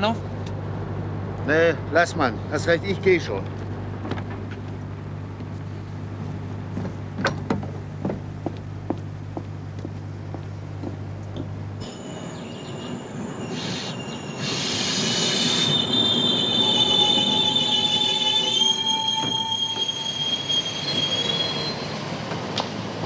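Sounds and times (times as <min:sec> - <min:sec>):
train rumbling: 0:00.0 - 0:23.0
train brakes squealing: 0:11.8 - 0:22.2.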